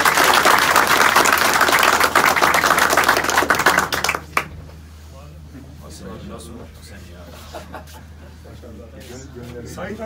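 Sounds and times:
people applauding: 0.0s - 4.5s.

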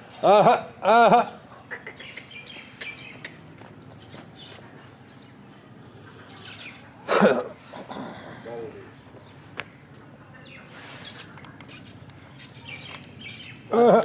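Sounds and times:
small birds chirping: 1.2s - 14.0s.

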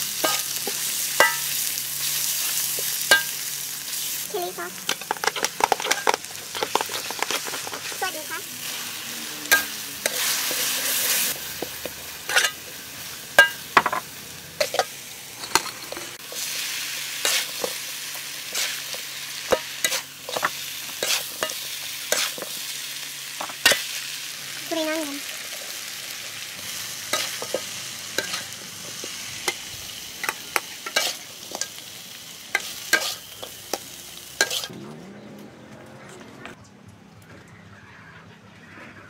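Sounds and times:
food sizzling in a pan: 0.0s - 34.7s
metal spatula scraping a pan: 4.9s - 11.4s, 12.2s - 12.8s, 19.5s - 22.6s, 27.1s - 29.6s, 30.2s - 31.8s, 32.5s - 33.6s, 34.4s - 34.7s.

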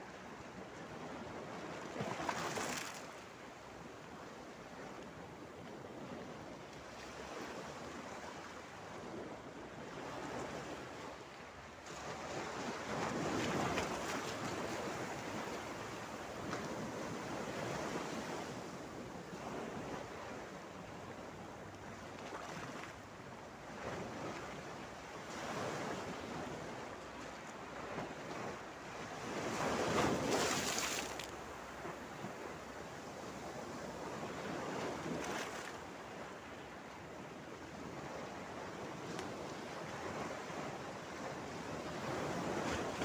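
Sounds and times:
waves washing over rock: 29.4s - 31.7s.

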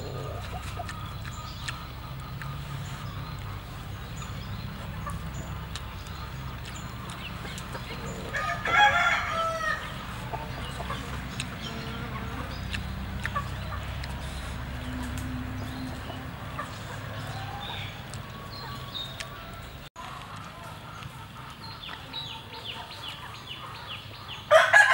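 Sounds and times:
steady low rumble: 0.0s - 19.9s
rooster crowing: 8.2s - 10.0s, 24.5s - 24.9s.

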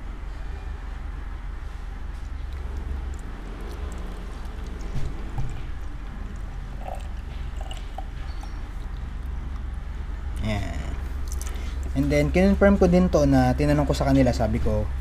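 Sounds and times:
liquid trickling into bottle: 2.4s - 9.8s.

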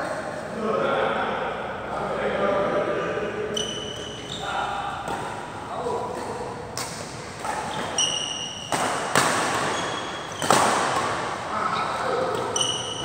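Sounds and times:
shoes squeaking on court floor: 3.5s - 13.0s
racket hitting shuttlecock: 4.9s - 11.5s.

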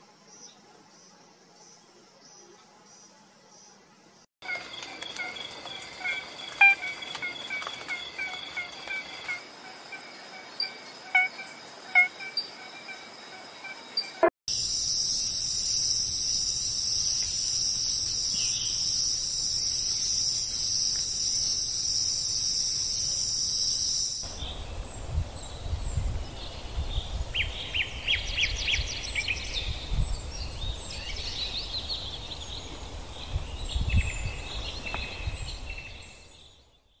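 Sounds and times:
birds chirping: 4.4s - 14.3s, 24.2s - 37.0s
insect trilling: 4.4s - 24.4s.

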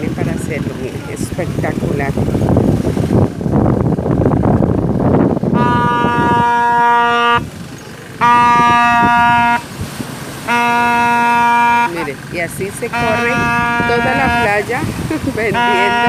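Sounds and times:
horn blasts: 5.5s - 7.5s, 8.2s - 12.2s, 12.8s - 16.0s.

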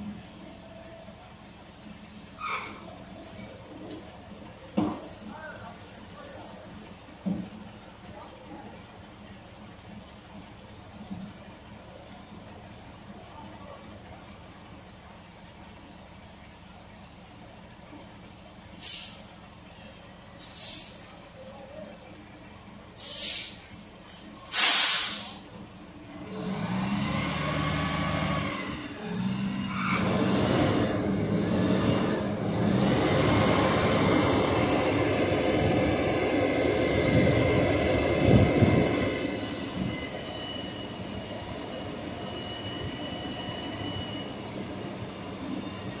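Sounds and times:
diesel engine under load: 0.0s - 46.0s
air brake hisses: 18.8s - 19.4s, 20.4s - 21.2s, 23.0s - 25.5s.

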